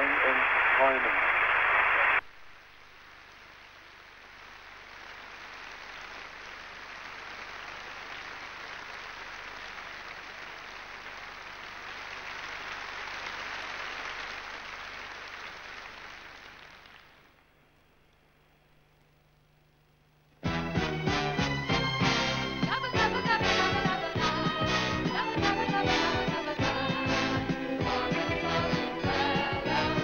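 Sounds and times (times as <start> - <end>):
audience applauding: 3.0 - 17.4.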